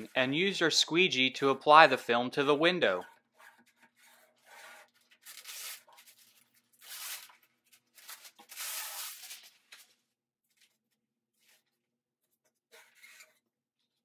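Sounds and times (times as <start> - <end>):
squeegee rubbing on film: 2.8 - 7.3
film backing peeling: 3.3 - 10.0.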